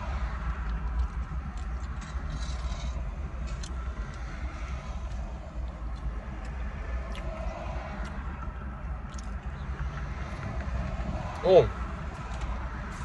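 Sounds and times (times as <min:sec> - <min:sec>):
wet mouth clicks and smacks: 0:08.0 - 0:09.5.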